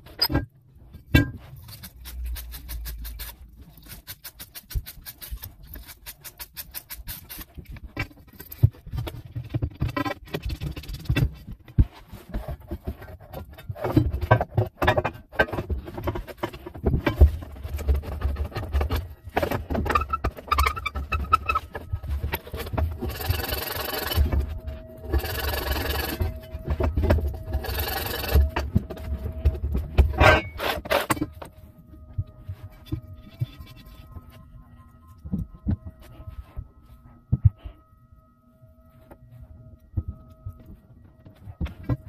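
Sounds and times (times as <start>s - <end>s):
rough scraping on copper pipe: 12.0s - 31.5s.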